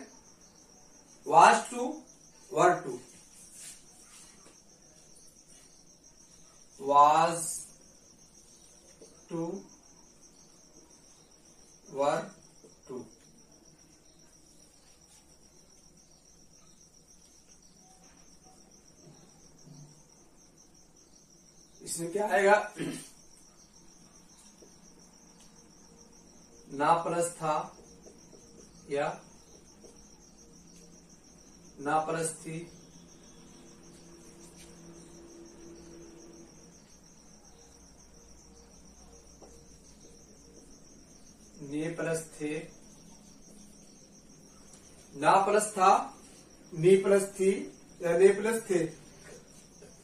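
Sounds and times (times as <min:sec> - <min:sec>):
cricket trilling: 0:00.0 - 0:50.0
marker scratching on whiteboard: 0:03.1 - 0:06.4.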